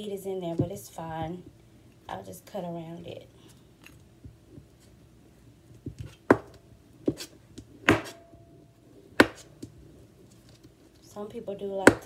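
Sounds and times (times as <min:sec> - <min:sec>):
knife chopping on cutting board: 0:07.9 - 0:08.2, 0:09.2 - 0:09.5.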